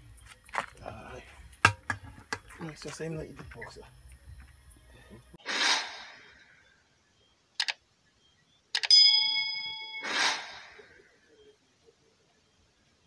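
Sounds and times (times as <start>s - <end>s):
whoosh effect: 5.4s - 6.5s, 10.0s - 11.0s
bright bell ding: 8.9s - 10.1s.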